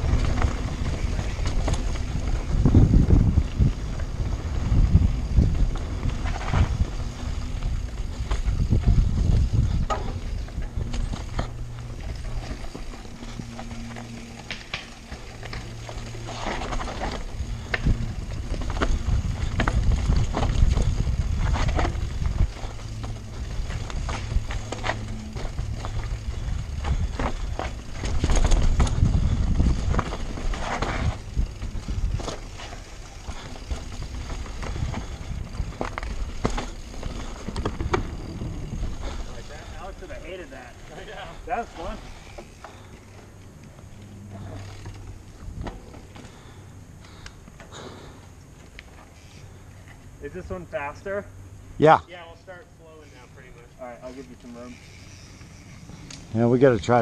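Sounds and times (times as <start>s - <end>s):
steady low buzz: 0.0s - 47.2s
bike tyres rolling over dirt and rock: 0.0s - 51.4s, 52.0s - 57.0s
clicks and rattles over bumps: 5.6s - 39.8s.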